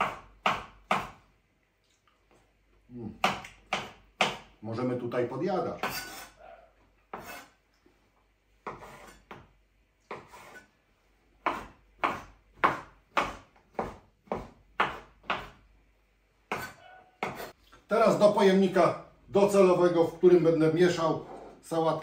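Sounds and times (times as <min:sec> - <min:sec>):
knife chopping on wooden board: 0:00.0 - 0:01.2, 0:03.2 - 0:04.5, 0:07.1 - 0:07.5, 0:08.6 - 0:09.5, 0:10.1 - 0:10.6, 0:11.4 - 0:15.6, 0:16.5 - 0:17.6.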